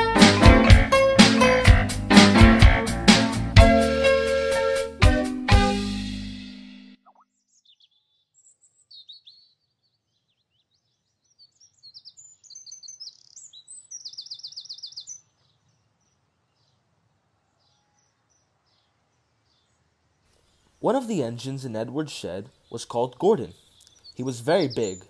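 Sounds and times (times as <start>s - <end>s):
rapid bird trill: 7.0s - 16.2s, 22.4s - 25.0s
songbirds chirping and twittering: 7.0s - 25.0s.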